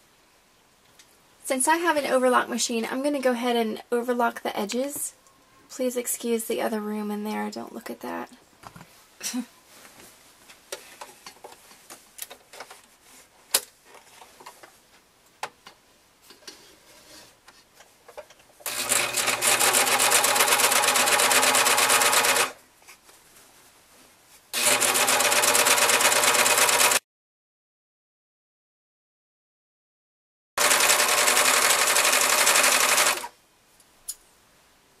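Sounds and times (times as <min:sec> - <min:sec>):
serger stitching: 0:18.6 - 0:22.6, 0:24.6 - 0:27.0, 0:30.6 - 0:33.3.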